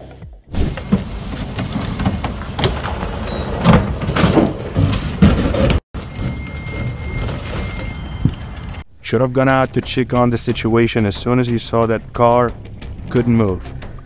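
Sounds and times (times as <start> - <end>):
wheels scraping over curb and shrubs: 0.6 - 8.8.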